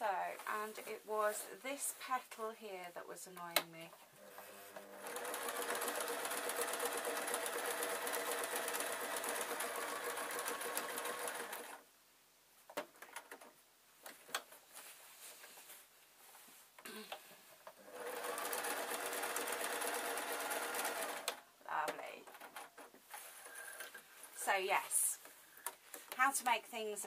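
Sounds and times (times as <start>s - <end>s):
sewing machine stitching: 4.3s - 11.8s, 17.8s - 21.4s.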